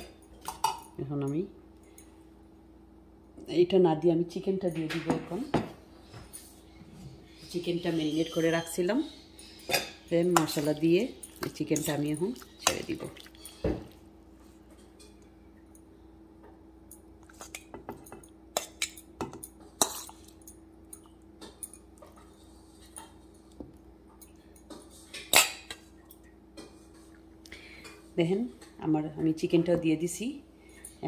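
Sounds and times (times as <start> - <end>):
fork clinking against bowl: 17.0 - 23.2.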